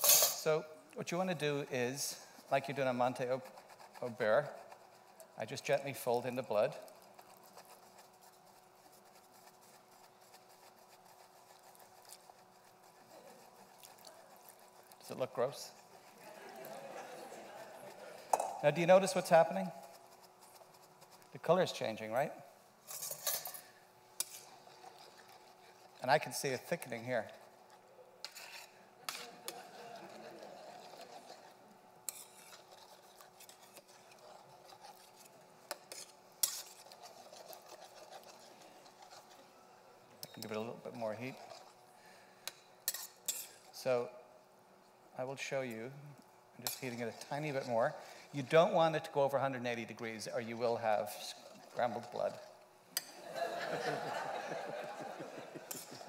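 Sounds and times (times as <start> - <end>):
metal spoon scraping a pan: 0.0 - 0.4, 22.8 - 39.5, 40.2 - 43.8, 46.6 - 48.8, 55.6 - 56.0.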